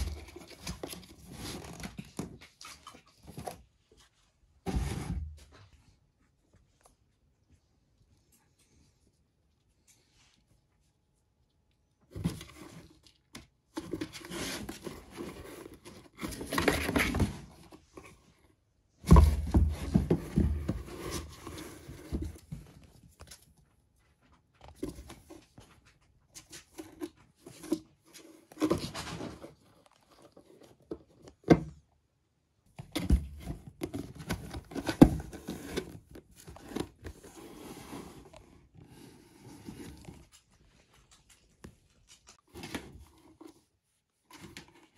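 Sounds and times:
cardboard scraping and rustling: 0:00.0 - 0:02.4, 0:04.6 - 0:05.6, 0:12.1 - 0:13.1, 0:13.8 - 0:18.4, 0:19.0 - 0:23.4, 0:26.4 - 0:31.8, 0:32.8 - 0:40.8, 0:42.4 - 0:44.9.

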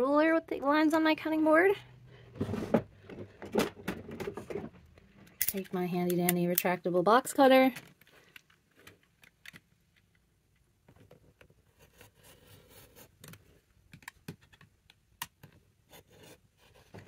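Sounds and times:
light scraping on cardboard: 0:11.7 - 0:13.2, 0:15.9 - 0:17.0.

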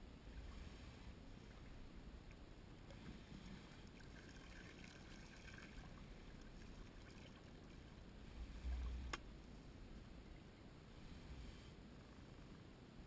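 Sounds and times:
water lapping and trickling: 0:00.3 - 0:09.6.

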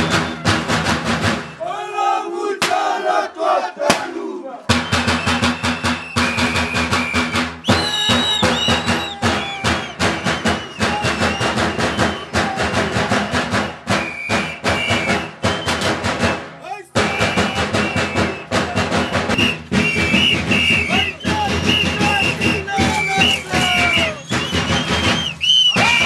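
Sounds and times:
fast dense drumming: 0:00.0 - 0:01.6, 0:04.7 - 0:26.0
high held piping tones: 0:04.7 - 0:12.1.

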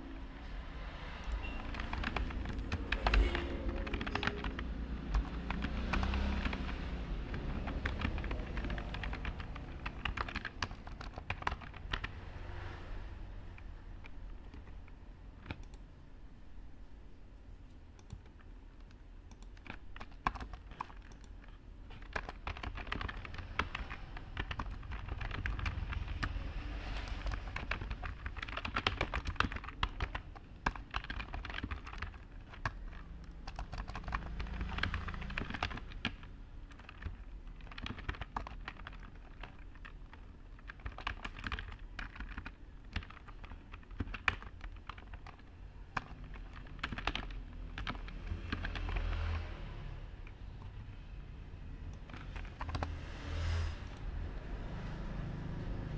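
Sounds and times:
keyboard keystroke clicks: 0:13.6 - 0:15.9, 0:18.0 - 0:26.4.

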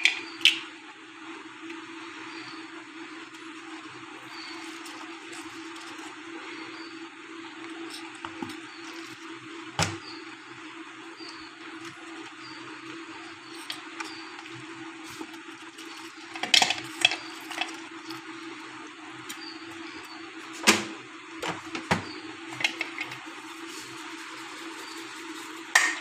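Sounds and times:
steady low hum: 0:00.0 - 0:26.0
wet brushing: 0:22.5 - 0:26.0.

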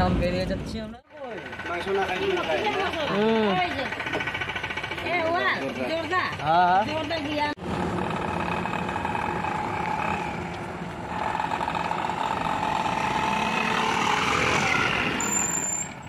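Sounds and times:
truck engine passing by: 0:07.6 - 0:16.0.

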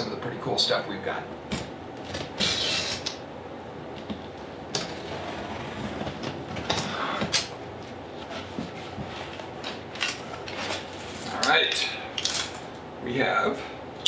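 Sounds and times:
box cutter slicing tape: 0:02.2 - 0:03.2.

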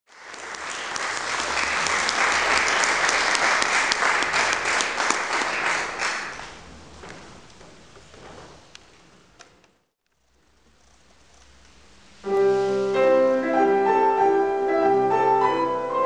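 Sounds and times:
audience applauding: 0:00.1 - 0:07.2.

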